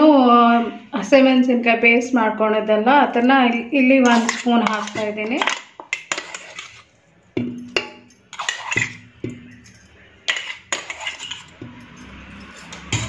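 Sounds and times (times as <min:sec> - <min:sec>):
metal spoon knocking on pot: 0:07.4 - 0:13.0.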